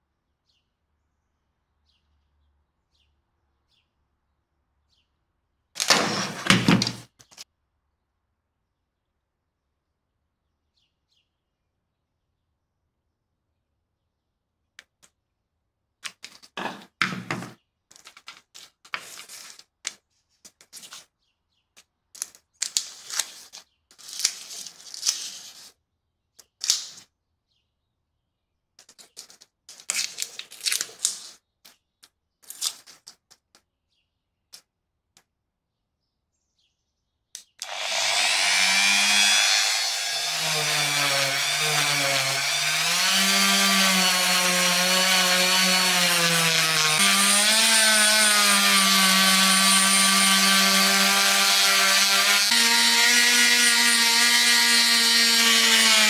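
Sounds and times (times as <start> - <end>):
tape peeling and rustling: 17.9 - 21.2, 22.1 - 25.8, 28.8 - 33.6
rotary tool whining: 37.6 - 56.0.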